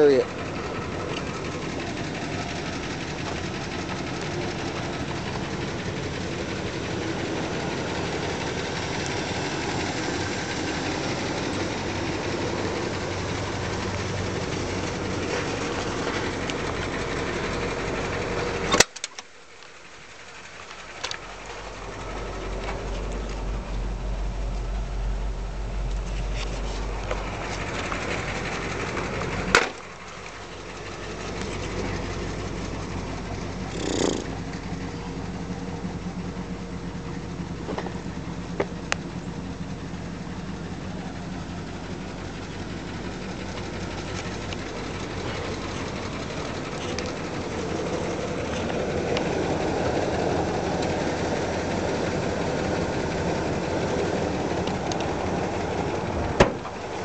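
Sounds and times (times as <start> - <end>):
pickup engine running: 0.0 - 57.0.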